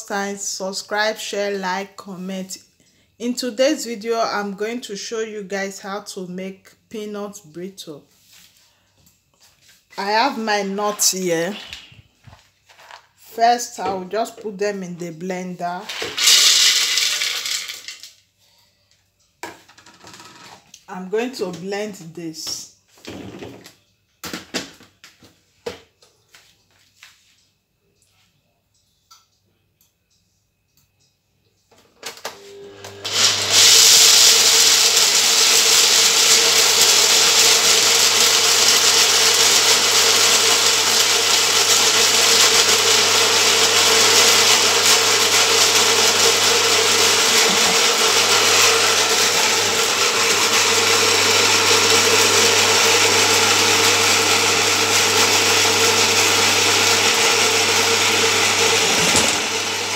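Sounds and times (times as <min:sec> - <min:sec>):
blender grinding peanuts: 0:15.8 - 0:18.1, 0:32.4 - 0:59.9
blender clicks: 0:32.8 - 0:59.9.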